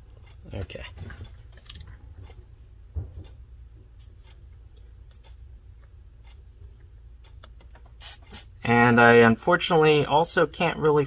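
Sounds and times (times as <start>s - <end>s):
steady low hum: 0.0s - 11.0s
small clicks and scrapes: 0.1s - 2.4s, 4.0s - 8.0s.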